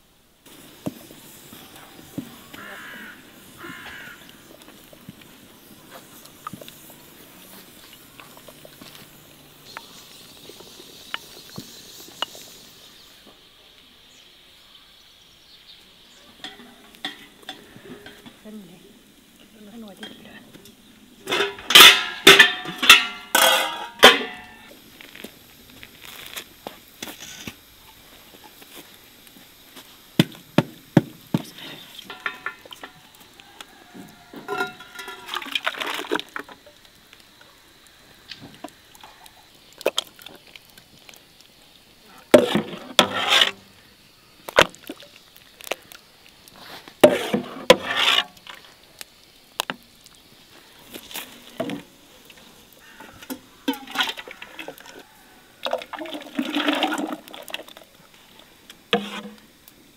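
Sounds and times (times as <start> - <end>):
liquid splashing into buckets: 21.2 - 24.8, 30.1 - 33.2, 33.9 - 37.4, 38.3 - 43.8, 44.4 - 59.8.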